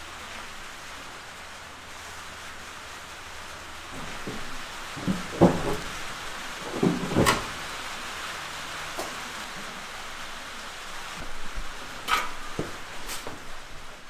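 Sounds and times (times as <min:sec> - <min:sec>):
light rain hissing: 0:00.0 - 0:14.0
sharp knocks and clunks: 0:04.0 - 0:07.7.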